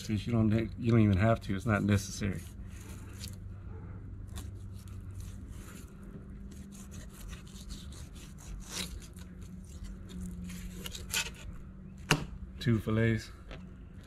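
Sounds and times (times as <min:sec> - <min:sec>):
knife scraping fish bones: 0:04.2 - 0:11.6.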